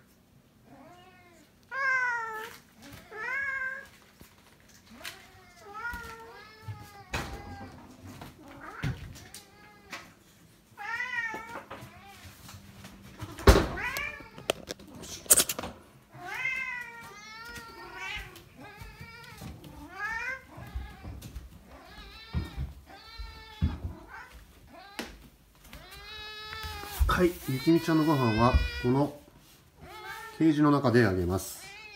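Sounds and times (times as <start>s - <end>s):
kitten meowing: 27.5s - 29.0s.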